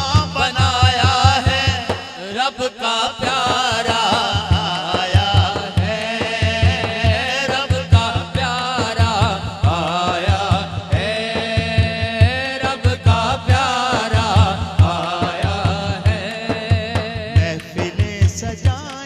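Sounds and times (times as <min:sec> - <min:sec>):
man singing through microphone: 0:00.0 - 0:19.0
low thumping beat: 0:03.9 - 0:19.0.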